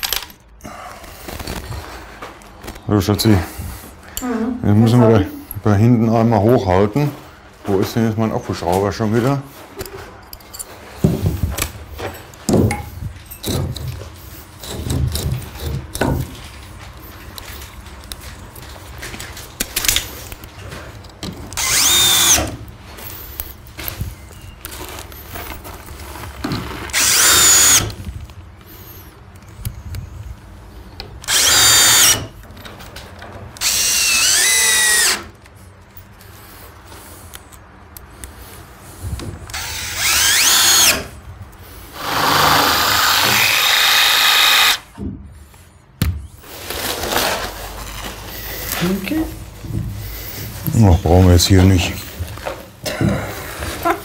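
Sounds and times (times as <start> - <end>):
cordless screwdriver motor whining: 21.5 - 22.6, 26.9 - 28.0, 31.2 - 32.3, 33.6 - 35.2, 39.5 - 41.1, 42.0 - 44.9.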